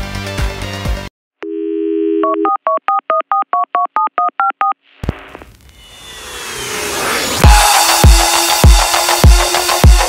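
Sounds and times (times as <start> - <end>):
telephone dial tone: 1.4 - 4.8
touch-tone dialing beeps: 1.5 - 4.8.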